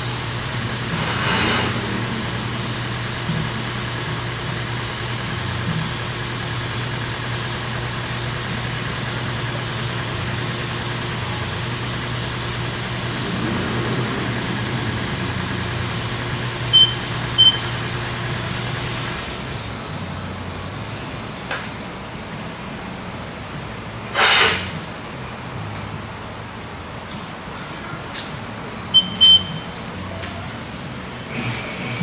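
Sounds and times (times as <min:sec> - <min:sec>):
low mechanical hum: 0:00.0 - 0:32.0
high electronic beeps: 0:16.7 - 0:17.8.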